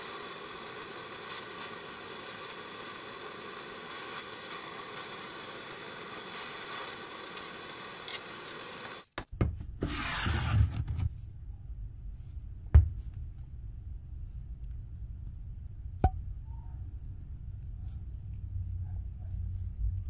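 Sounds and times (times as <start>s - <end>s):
blowtorch hissing: 0.0s - 9.0s.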